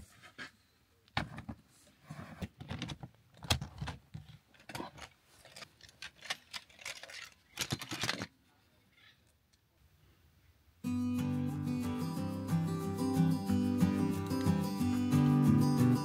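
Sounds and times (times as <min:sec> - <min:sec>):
lantern handling rattles: 0:04.6 - 0:08.3.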